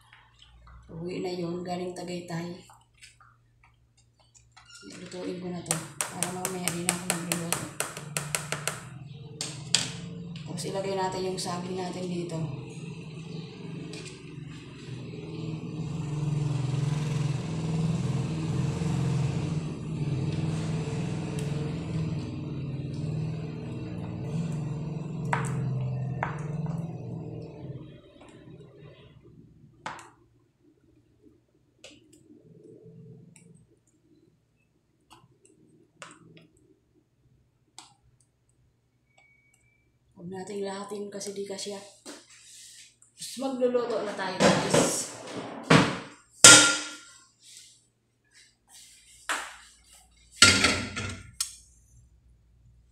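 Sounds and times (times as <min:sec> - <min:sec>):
low mechanical drone: 0:08.7 - 0:29.8.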